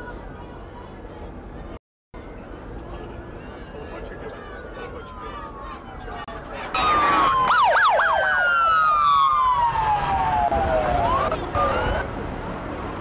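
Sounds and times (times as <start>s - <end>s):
traffic noise: 0.0s - 13.0s
police sirens wailing: 4.1s - 12.1s.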